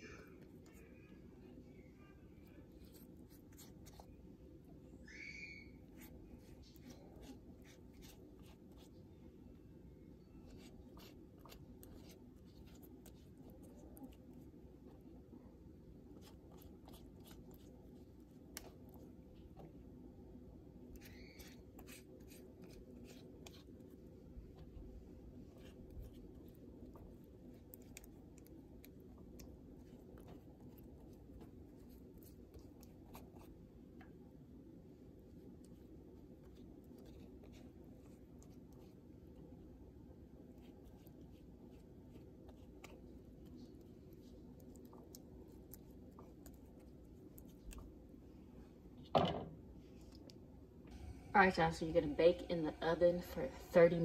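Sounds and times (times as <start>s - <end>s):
steady low hum: 0.0s - 54.0s
pastry brush dabbing dough: 2.0s - 4.8s, 5.7s - 48.7s
pastry brush strokes on dough: 5.8s - 9.2s, 21.0s - 33.7s.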